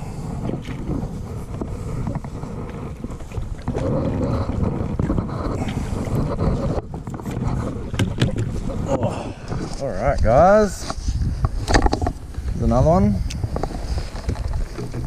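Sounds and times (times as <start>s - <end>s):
wind buffeting the microphone: 0.0s - 15.0s.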